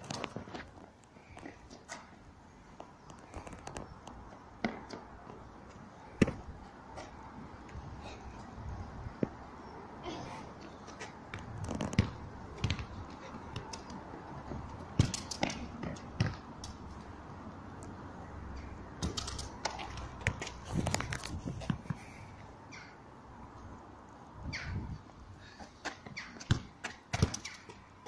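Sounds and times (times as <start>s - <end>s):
ball being kicked: 11.3s - 13.8s, 15.0s - 16.4s, 19.0s - 21.8s, 25.8s - 27.6s.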